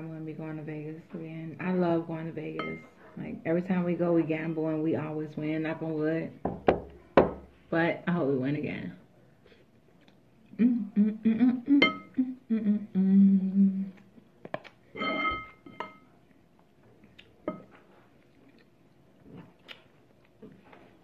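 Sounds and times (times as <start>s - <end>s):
spoon clinking against bowl: 2.6s - 2.8s, 15.0s - 16.0s
woman humming while eating: 10.5s - 14.1s.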